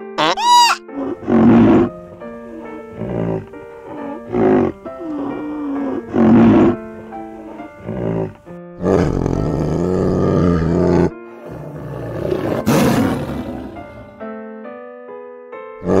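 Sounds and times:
gentle piano music: 0:00.0 - 0:00.2, 0:00.8 - 0:16.0
big cat roaring: 0:00.9 - 0:14.3, 0:15.8 - 0:16.0.

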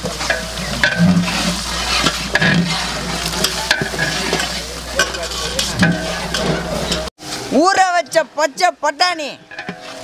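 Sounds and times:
stirring and scraping pot: 0:00.0 - 0:07.4, 0:09.4 - 0:10.0
vegetables sizzling in hot oil: 0:00.0 - 0:07.5.

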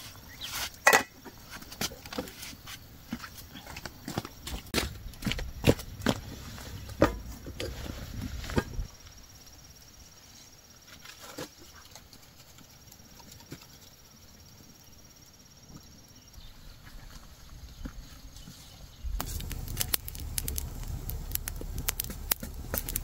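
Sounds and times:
pot and lid clanking: 0:00.8 - 0:01.2.

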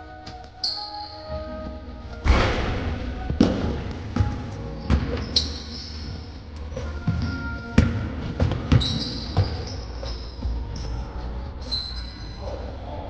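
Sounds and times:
background music: 0:00.0 - 0:13.0
sneakers squeaking: 0:00.3 - 0:01.8, 0:03.1 - 0:12.7
ball hitting hoop: 0:02.2 - 0:05.3, 0:07.8 - 0:09.5
basketball bouncing on floor: 0:02.3 - 0:05.3, 0:07.1 - 0:09.7.

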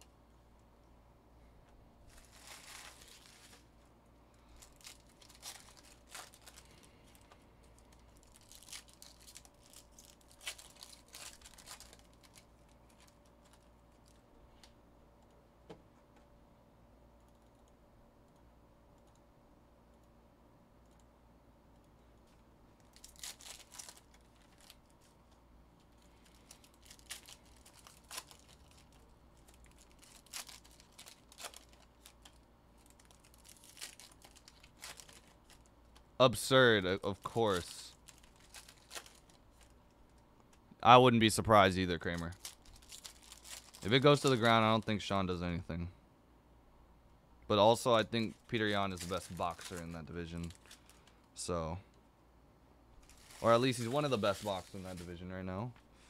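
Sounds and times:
foil wrappers crinkling: 0:02.1 - 0:03.8, 0:04.4 - 0:14.2, 0:22.8 - 0:25.2, 0:25.8 - 0:36.0, 0:37.0 - 0:40.2, 0:41.9 - 0:45.0, 0:48.1 - 0:51.3, 0:53.0 - 0:55.2.

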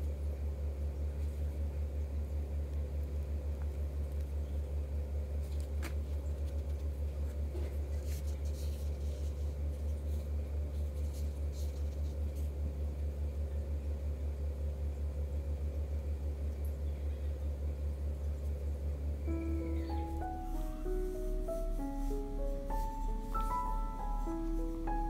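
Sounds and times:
pulsing machine hum: 0:19.0 - 0:25.0.

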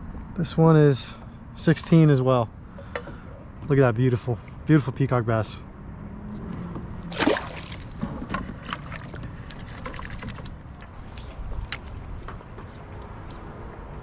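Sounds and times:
wind: 0:00.0 - 0:14.0
water noise: 0:07.0 - 0:12.2.

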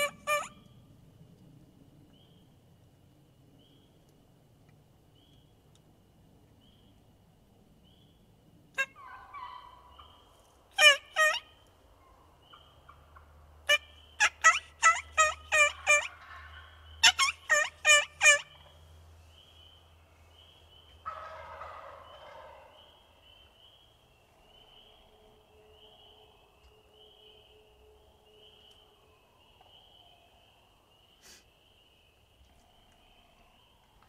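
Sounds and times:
turkey yelping: 0:00.0 - 0:00.6, 0:08.8 - 0:10.1, 0:10.8 - 0:12.2, 0:13.7 - 0:18.7, 0:21.0 - 0:22.9
rough turkey call: 0:00.0 - 0:00.7, 0:08.8 - 0:10.2, 0:10.8 - 0:13.0, 0:13.7 - 0:18.8, 0:20.9 - 0:23.6, 0:31.2 - 0:31.4.

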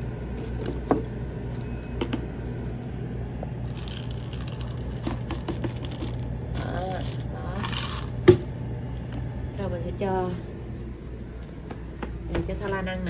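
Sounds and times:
steady low hum: 0:00.0 - 0:13.0
cereal puffs rattling: 0:03.7 - 0:08.2.

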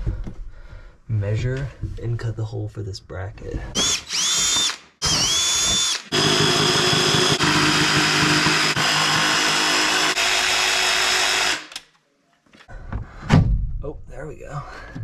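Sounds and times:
jigsaw cutting wood: 0:03.8 - 0:11.8.

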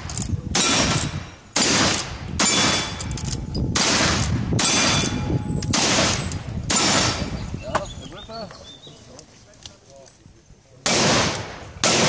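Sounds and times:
rifle shots echoing: 0:00.5 - 0:07.4, 0:10.8 - 0:12.0.

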